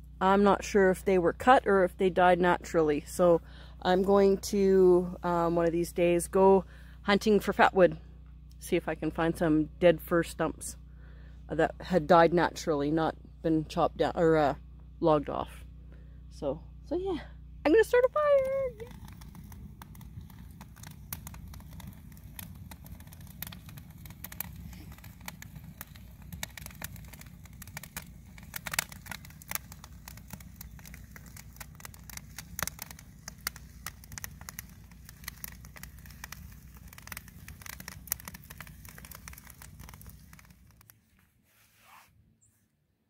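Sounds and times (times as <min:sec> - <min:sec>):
wood fire crackling: 0:00.0 - 0:09.2, 0:17.2 - 0:41.4.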